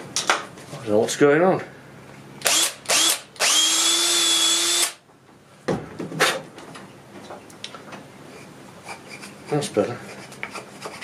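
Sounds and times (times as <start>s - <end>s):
power drill whining: 2.4s - 5.0s.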